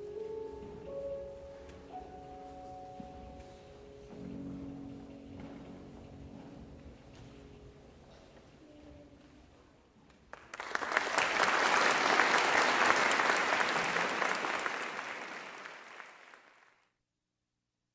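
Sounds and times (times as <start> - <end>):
audience applauding: 10.3 - 16.8.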